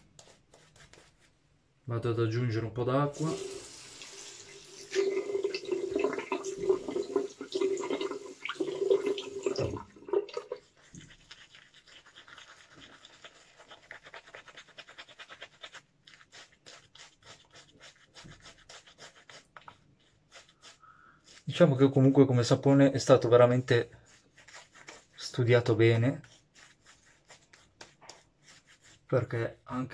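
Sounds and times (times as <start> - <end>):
shaving brush strokes: 0.0 - 1.4, 10.4 - 29.4
tap running into sink: 3.3 - 10.5.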